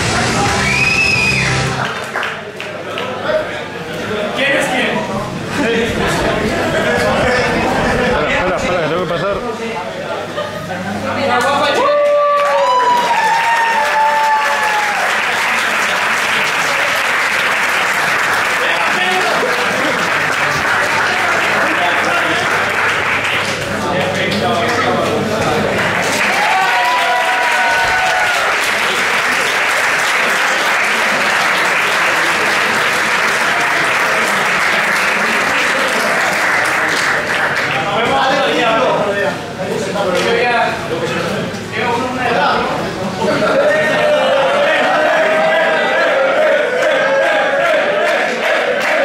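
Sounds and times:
spectator cheering: 0.0s - 2.1s, 11.7s - 15.8s, 26.2s - 29.6s, 43.6s - 49.0s
audience applauding: 0.0s - 3.4s, 11.6s - 38.7s, 44.2s - 49.0s.

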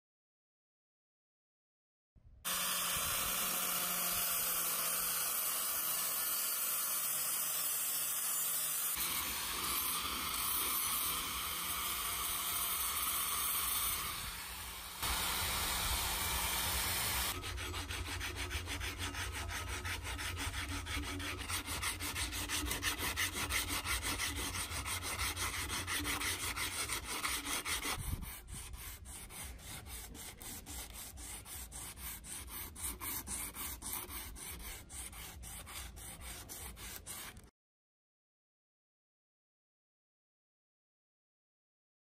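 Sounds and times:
sandpaper rubbing on steel: 8.4s - 37.5s.

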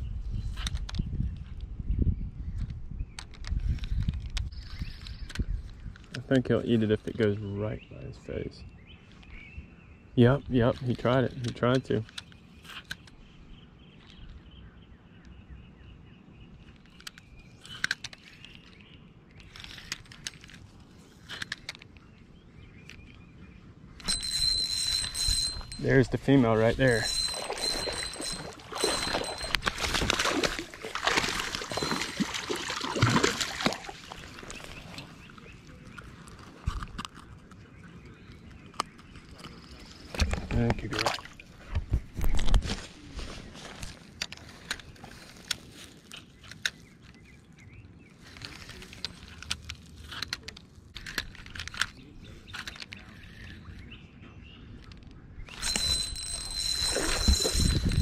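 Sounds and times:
bird chirping: 21.0s - 36.6s
spinning reel being cranked: 24.0s - 25.9s, 26.8s - 29.8s, 55.5s - 58.0s
fish splashing at water surface: 27.1s - 34.9s.

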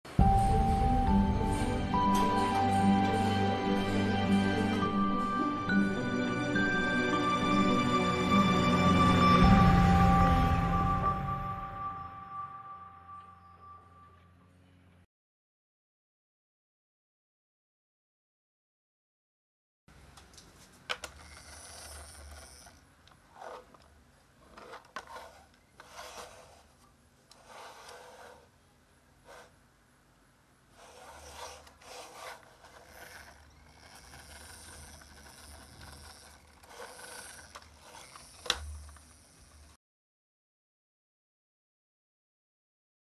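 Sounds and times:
toy car scraping on wood: 20.9s - 28.6s, 29.2s - 29.6s, 30.7s - 39.8s.

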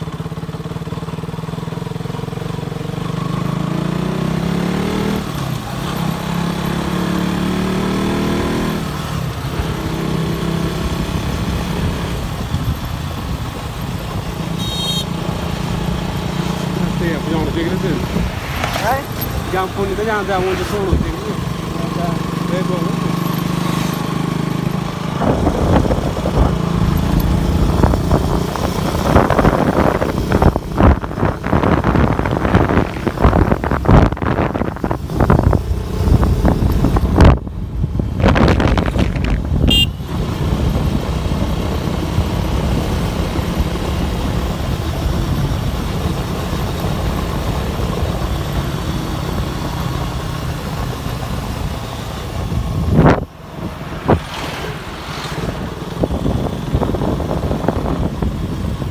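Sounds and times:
motorcycle engine running: 0.0s - 58.9s
wind noise on microphone: 25.0s - 58.9s.

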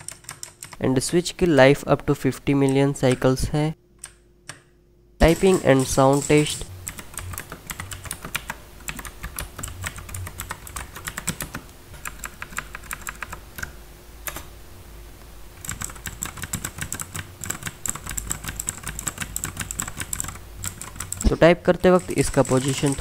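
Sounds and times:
clicky mechanical keyboard typing: 0.0s - 0.8s, 5.2s - 14.5s, 15.6s - 23.0s.

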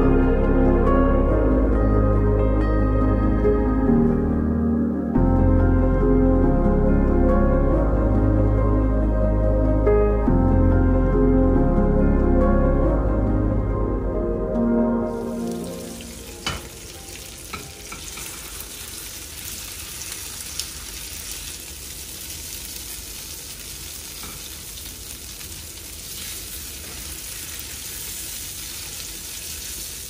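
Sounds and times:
food sizzling on a pan: 15.3s - 30.0s.

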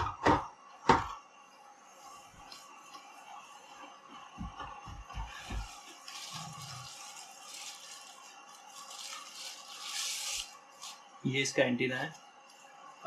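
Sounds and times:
plastic wrapping crinkling: 5.4s - 11.0s.

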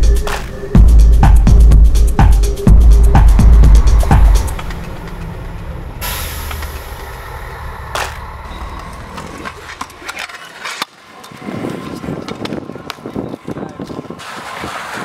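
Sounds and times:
low rumble with hissing rush: 0.0s - 10.1s
scooter wheels rolling on concrete: 8.1s - 15.0s.

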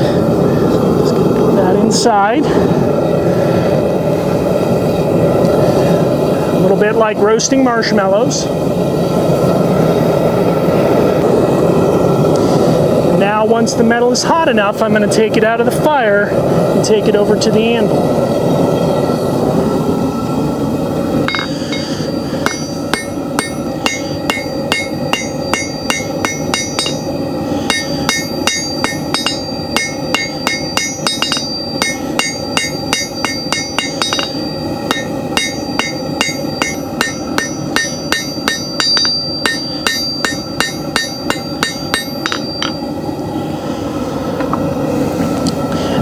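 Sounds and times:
gas forge rushing: 0.0s - 46.0s
hammer striking steel on anvil: 21.3s - 42.8s.

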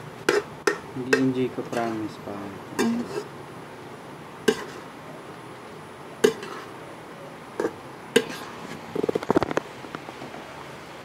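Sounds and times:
metal spatula clanking on wok: 6.2s - 6.7s.

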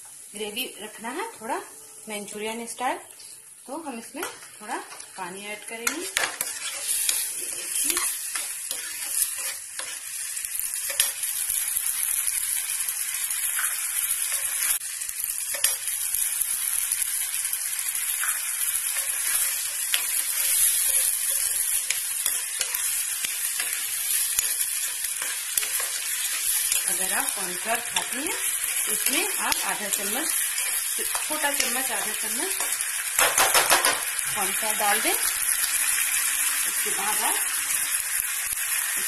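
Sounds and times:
sauce sizzling in a frying pan: 0.0s - 39.0s
metal spoon stirring: 5.8s - 11.4s, 15.4s - 16.0s, 18.7s - 32.8s.

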